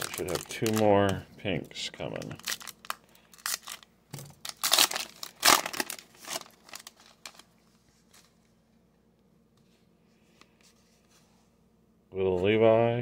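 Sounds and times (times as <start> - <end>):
foil wrapper crinkling and tearing: 0.0 - 1.2, 2.0 - 7.6.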